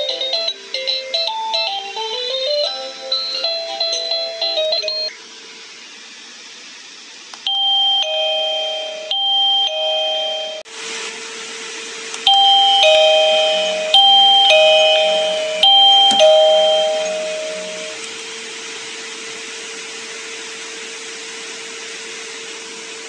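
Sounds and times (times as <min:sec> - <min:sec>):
doorbell chime ding-dong: 0:00.0 - 0:05.1, 0:07.5 - 0:10.6, 0:12.3 - 0:18.0.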